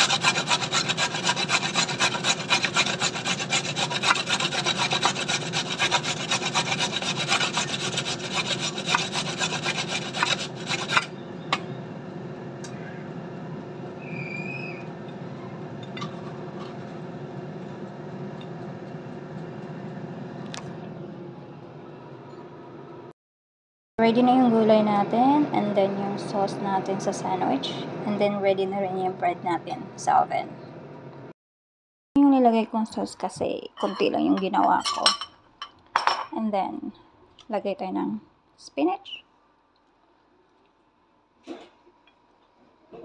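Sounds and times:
carrot rasping on grater: 0.0s - 11.1s
steady low hum: 0.0s - 23.1s.

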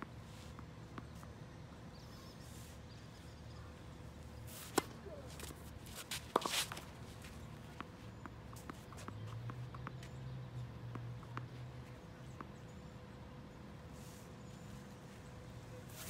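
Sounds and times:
racket striking tennis ball: 4.6s - 6.8s
shoes scuffing on hard court: 4.6s - 7.9s.

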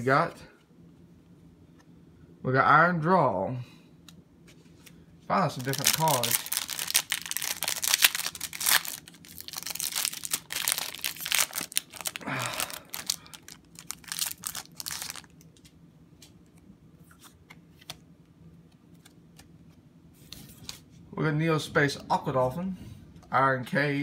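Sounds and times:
foil wrapper crinkling and tearing: 5.5s - 15.7s.

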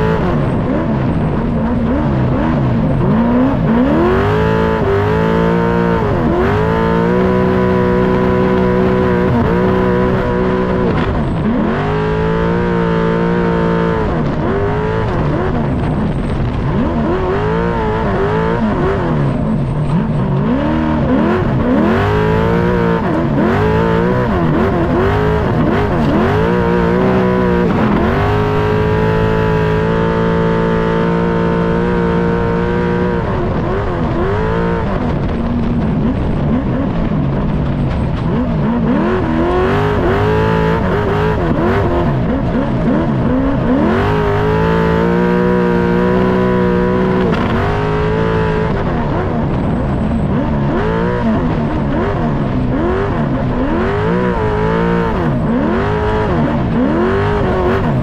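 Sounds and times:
truck engine revving: 0.0s - 58.0s.

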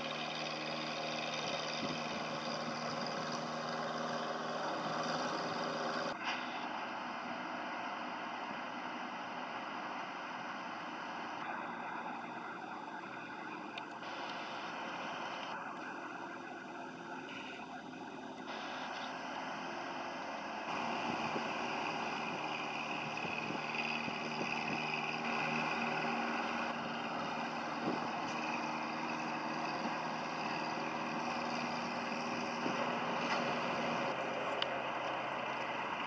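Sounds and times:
boat engine running: 20.3s - 36.0s.

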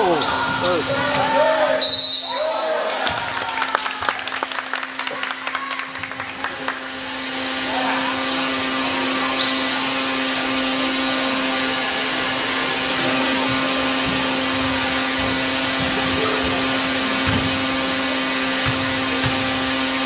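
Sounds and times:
basketball bouncing on gym floor: 13.1s - 19.8s.

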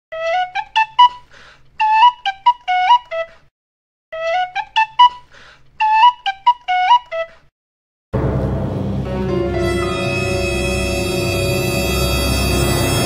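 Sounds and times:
flute-like melody: 0.1s - 3.3s, 4.2s - 7.4s, 9.1s - 13.0s.

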